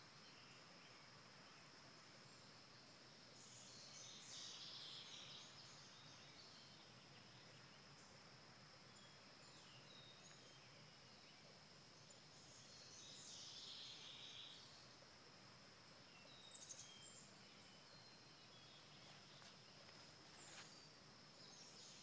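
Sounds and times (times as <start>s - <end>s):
low hiss: 0.0s - 22.0s
small birds chirping: 0.0s - 22.0s.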